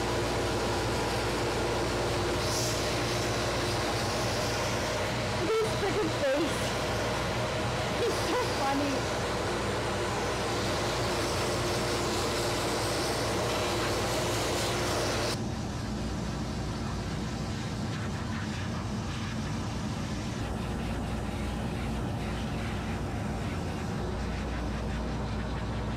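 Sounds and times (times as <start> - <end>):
pet dryer blowing air: 0.0 - 15.5.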